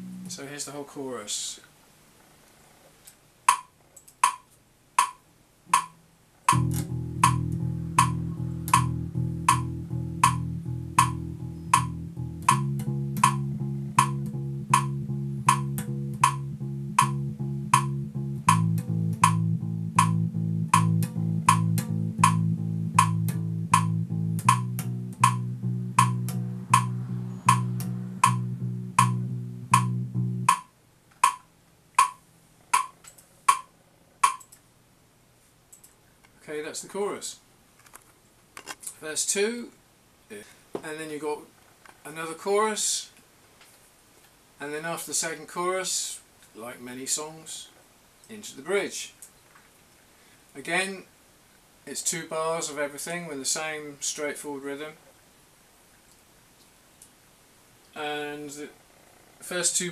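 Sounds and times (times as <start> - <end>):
electric bass guitar: 0.0 - 0.4, 5.7 - 30.6
metronome clicks: 3.5 - 34.6.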